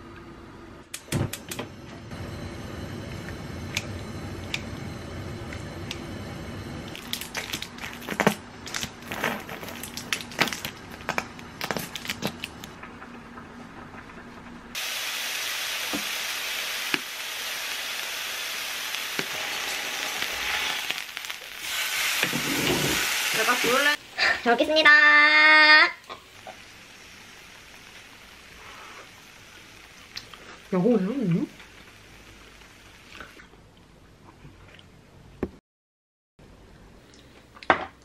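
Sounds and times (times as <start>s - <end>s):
beef sizzling on a grill pan: 14.8s - 33.2s.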